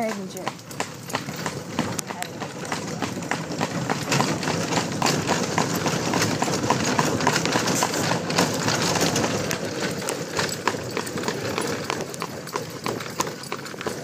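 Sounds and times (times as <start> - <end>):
buggy rolling noise: 0.0 - 14.0
horse hooves clopping on pavement: 0.0 - 14.0.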